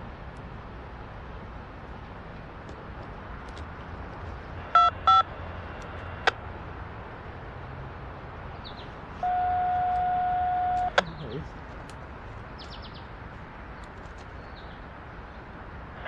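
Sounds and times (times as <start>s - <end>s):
radio scanner beeps: 4.8s - 5.3s, 9.2s - 11.1s
steady single-pitch tone: 9.2s - 11.0s.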